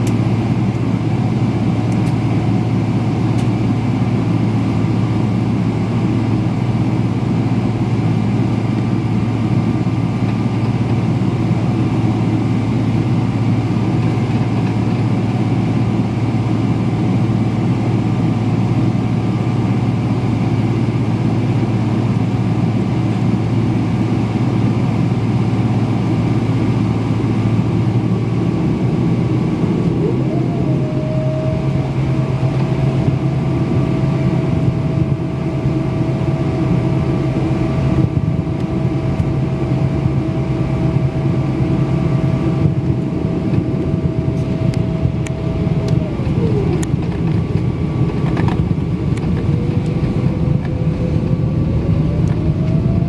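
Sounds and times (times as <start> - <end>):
jet engines idling drone: 0.0 - 53.0
faint steady whining tones: 20.2 - 53.0.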